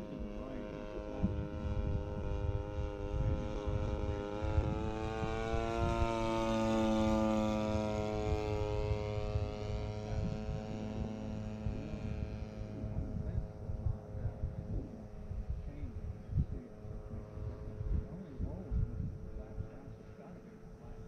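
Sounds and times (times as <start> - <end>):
model plane engine passing: 0.0 - 21.0.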